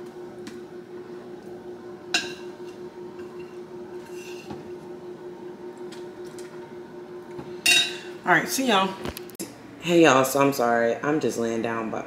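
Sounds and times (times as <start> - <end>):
spoon scraping: 2.2 - 4.6.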